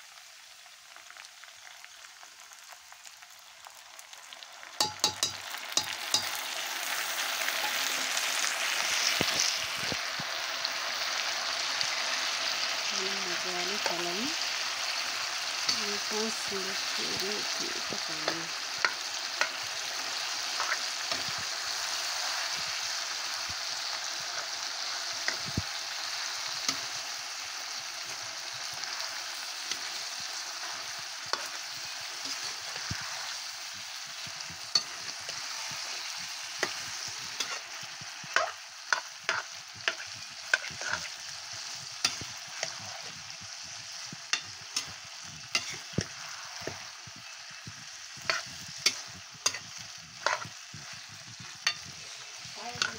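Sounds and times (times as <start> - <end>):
meat sizzling in oil: 0.0 - 52.9
metal spatula scraping a pan: 4.8 - 9.6, 17.0 - 52.9.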